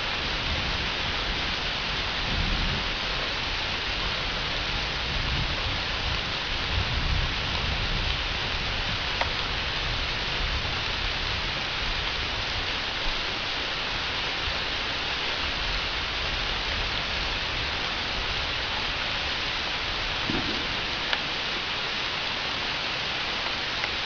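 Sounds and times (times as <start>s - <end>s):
rain falling: 0.0s - 24.0s
raindrop ticks: 9.1s - 9.5s, 20.2s - 21.8s, 23.3s - 24.0s.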